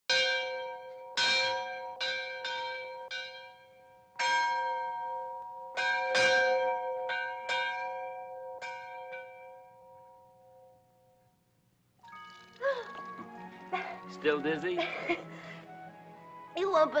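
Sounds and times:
bell ringing: 12.0 - 14.8.

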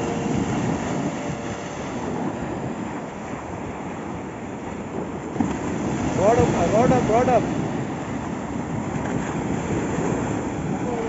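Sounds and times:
surf waves breaking on sand: 0.0 - 11.0
wind buffeting microphone: 0.0 - 11.0.

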